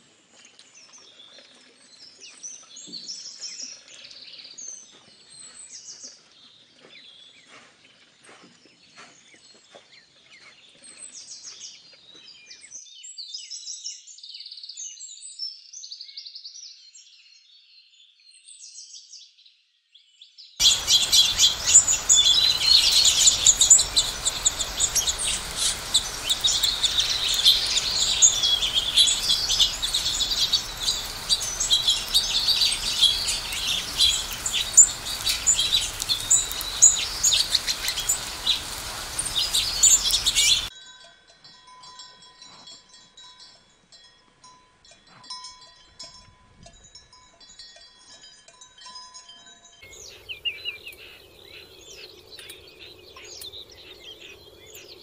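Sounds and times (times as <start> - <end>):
ducklings peeping: 20.6 - 40.7
finches chirping: 20.6 - 40.7, 49.9 - 55.0.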